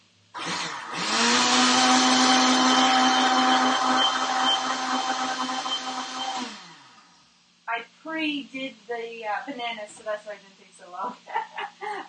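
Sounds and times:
blender motor running: 0.4s - 7.2s.

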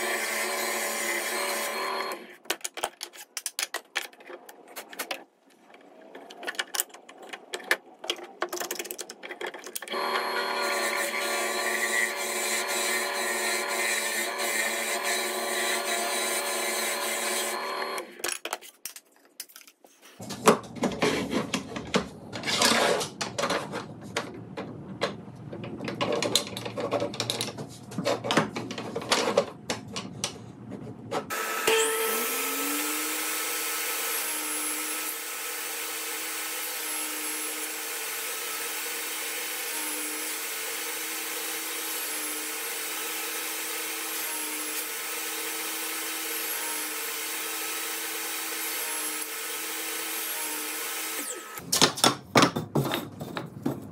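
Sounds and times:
power tool motor: 0.0s - 2.3s, 9.9s - 18.2s, 31.3s - 51.6s.

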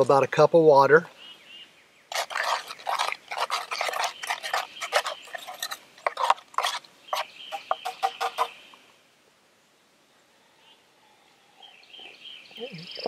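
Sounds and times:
spoon scraping and clinking in cup: 2.1s - 8.5s.

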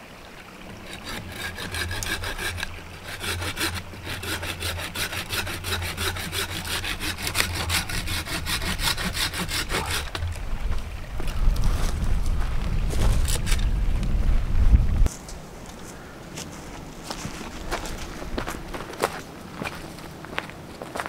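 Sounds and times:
pruning saw cutting wood: 0.7s - 10.3s.

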